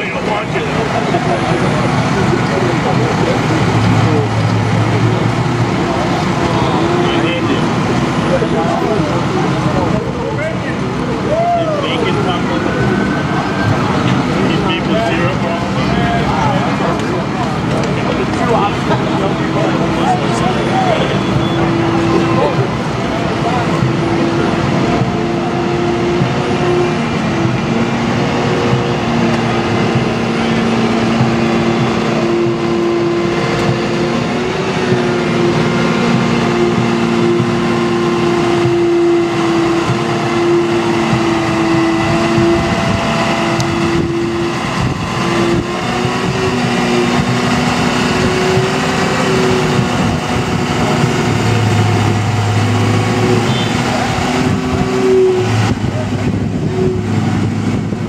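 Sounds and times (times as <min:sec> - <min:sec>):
diesel engine droning: 0:00.0 - 0:58.0.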